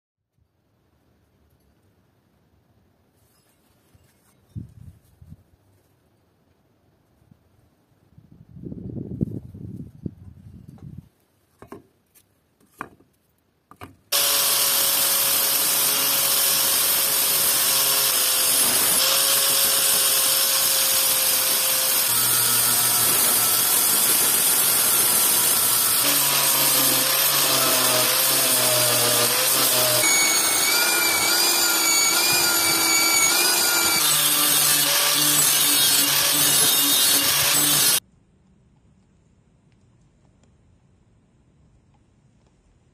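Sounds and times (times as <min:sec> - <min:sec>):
angle grinder grinding steel: 0:14.1 - 0:38.0.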